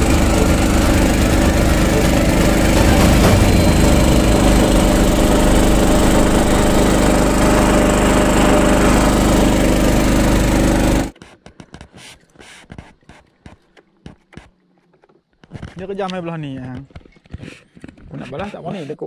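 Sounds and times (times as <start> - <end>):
boat engine drone: 0.0 - 11.1.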